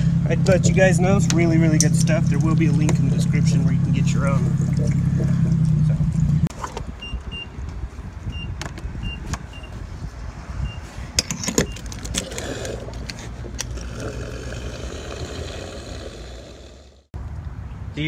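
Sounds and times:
low rumble: 0.0s - 6.5s.

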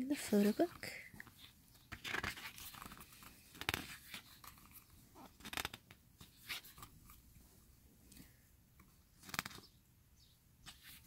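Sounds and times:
thick paper pages turning: 0.1s - 7.2s, 9.2s - 9.7s.

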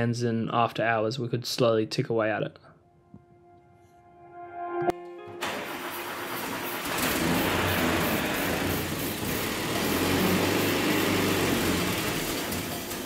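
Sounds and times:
engine starting and running: 5.3s - 13.0s
aerosol spraying: 6.3s - 11.8s.

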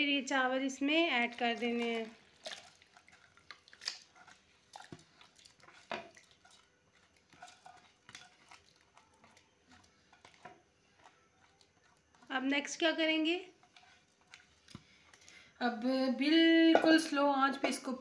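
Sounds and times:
spatula scraping and tapping a pan: 4.0s - 15.2s.

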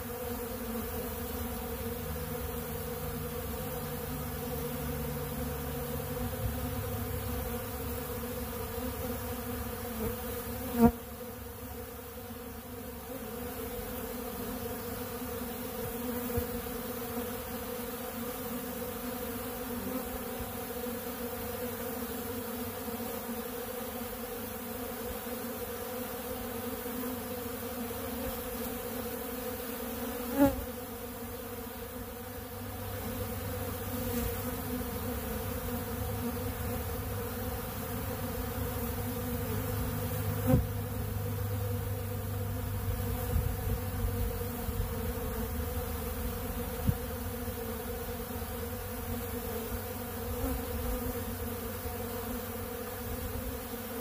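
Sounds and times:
bees buzzing: 0.0s - 54.0s.

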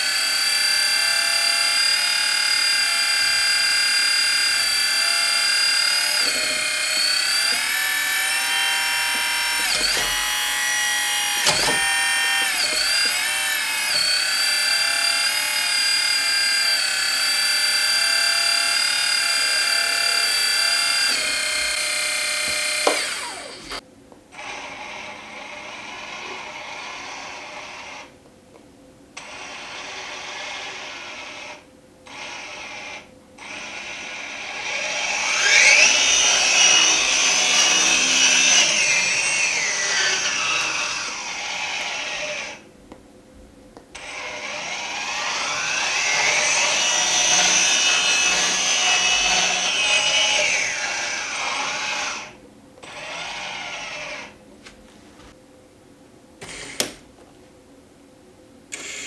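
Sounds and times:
hydraulic pump whining: 0.0s - 23.8s, 29.2s - 42.6s, 44.0s - 54.4s.

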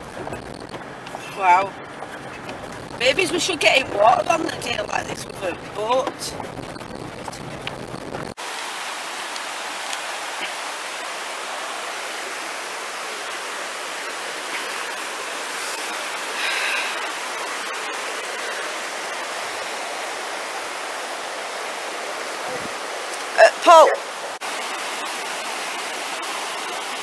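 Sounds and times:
river rushing over rocks: 8.4s - 27.0s.

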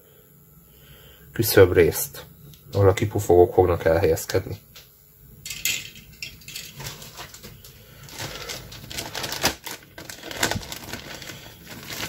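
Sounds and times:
plastic bag crinkling: 6.4s - 12.0s.

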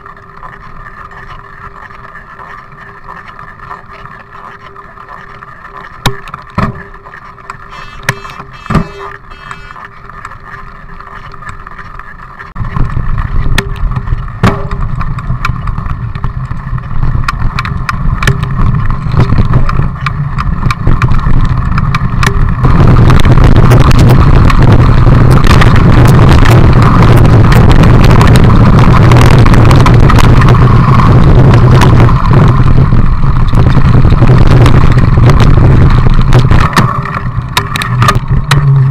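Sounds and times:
bike tyre and frame rattle: 0.0s - 38.9s
sharp clicks: 7.7s - 9.8s
wind rushing over microphone: 12.6s - 38.9s.

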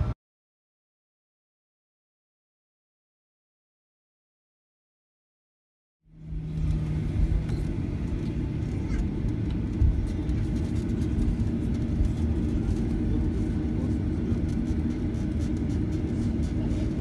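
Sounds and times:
jet engines at low power: 6.1s - 17.0s
low rumble of wheels: 6.1s - 17.0s.

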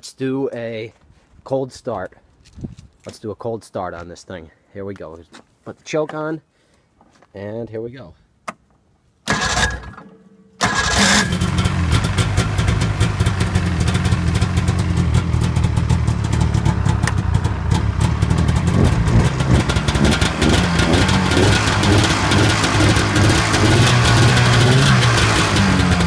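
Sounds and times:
electric starter cranking: 9.3s - 10.0s, 10.6s - 12.4s
snowmobile engine running: 10.7s - 26.0s.

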